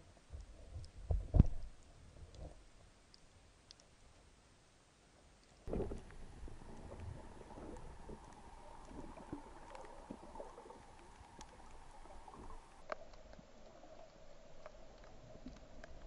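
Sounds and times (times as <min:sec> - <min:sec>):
faint steady hum: 0:00.0 - 0:16.0
small clicks and crackles: 0:00.0 - 0:16.0
low underwater rumble: 0:05.7 - 0:16.0.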